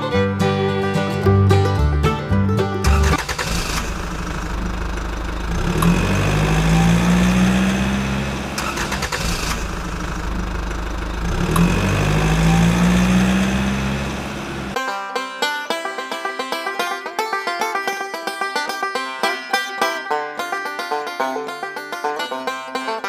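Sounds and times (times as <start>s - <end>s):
tractor engine revving: 1.2s - 14.8s.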